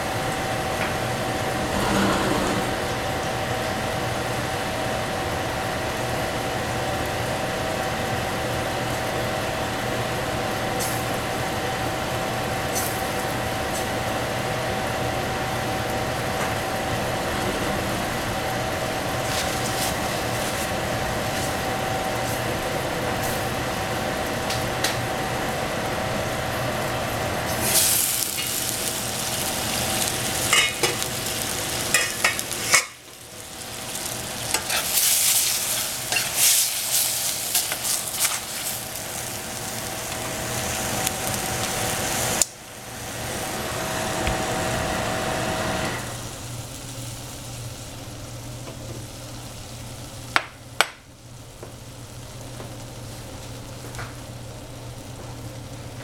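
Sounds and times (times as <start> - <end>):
food sizzling in a pan: 0.0 - 17.2, 18.1 - 56.0
utensil scraping pan: 1.6 - 3.2.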